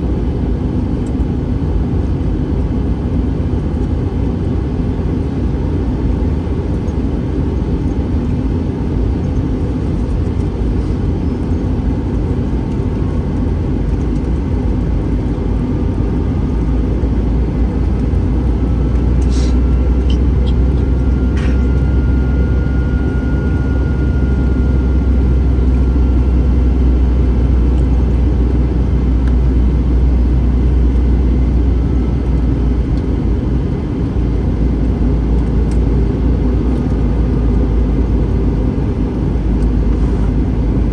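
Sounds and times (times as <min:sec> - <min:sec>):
airliner cabin engine rumble: 0:00.0 - 0:40.9
faint high whine: 0:15.2 - 0:32.8.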